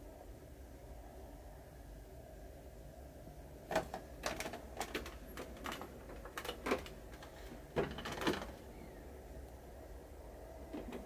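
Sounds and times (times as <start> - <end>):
clicks and knocks on plastic: 3.7 - 8.6.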